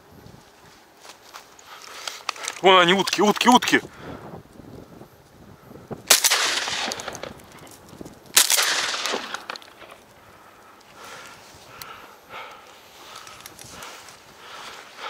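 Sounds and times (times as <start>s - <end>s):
shotgun shots: 6.1s - 7.4s, 8.4s - 9.9s.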